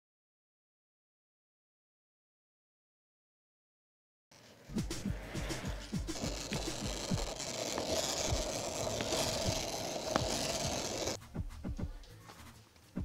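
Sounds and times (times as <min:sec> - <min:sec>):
skateboard wheels rolling on asphalt: 0:04.3 - 0:11.2.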